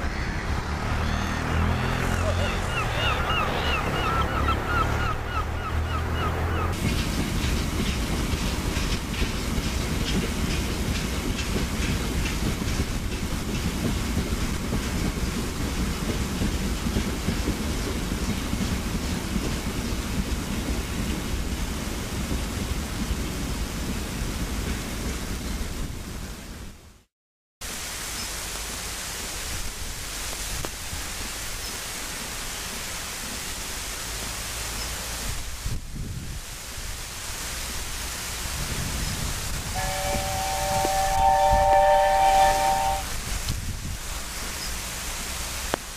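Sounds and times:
freight train rumbling past: 0.0 - 26.7, 37.1 - 45.8
rain noise: 0.0 - 45.9
wheels clicking over rail joints: 6.7 - 23.6
wind on microphone: 35.2 - 37.0, 38.4 - 44.1.

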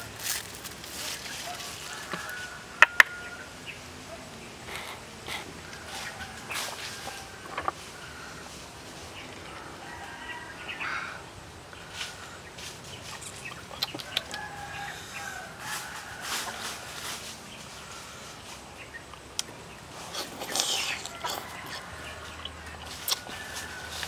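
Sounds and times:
birds calling: 0.0 - 24.0
wet eating sound: 20.1 - 23.4.

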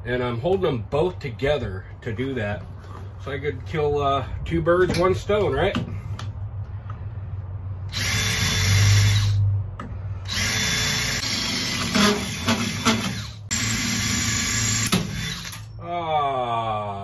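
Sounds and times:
cordless drill boring through metal: 7.9 - 9.4, 10.2 - 15.6.

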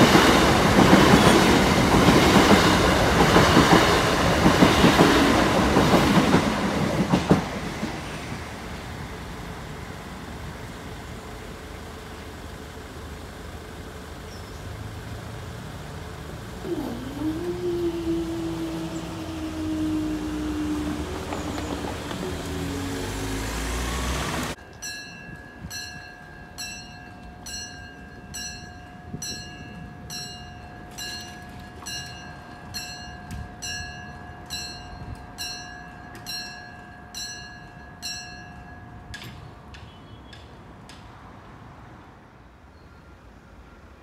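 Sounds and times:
loud rumbling noise: 15.6 - 24.6
level crossing bells ringing: 18.5 - 39.2.

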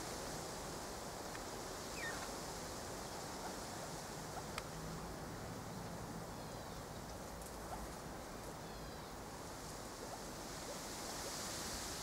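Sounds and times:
wind rushing through trees: 0.0 - 12.0
distant bird chirps: 2.0 - 2.3.

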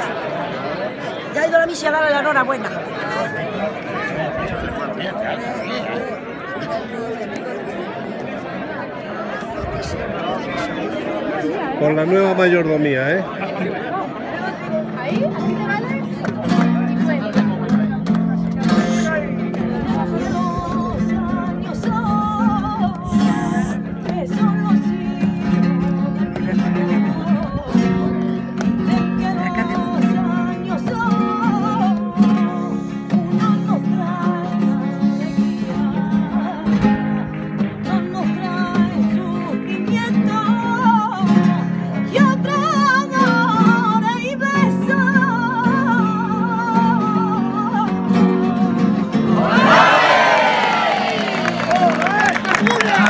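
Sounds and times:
guitars strumming: 14.5 - 53.0
woman singing: 20.2 - 49.2.

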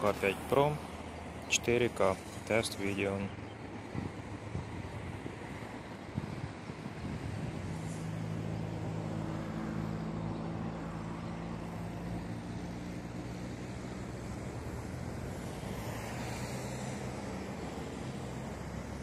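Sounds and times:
distant engine droning: 0.0 - 19.0
wind noise: 3.8 - 9.5.

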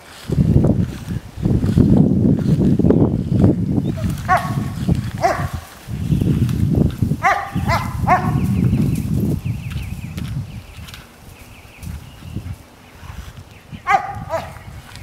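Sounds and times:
dog yelping: 3.9 - 5.7, 7.2 - 8.4, 13.8 - 14.6.

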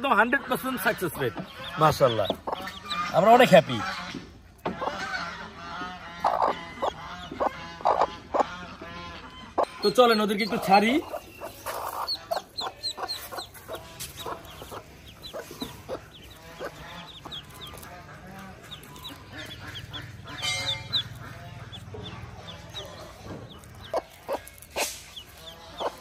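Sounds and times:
ducklings peeping: 0.0 - 26.0
hen clucking softly: 0.5 - 26.0.

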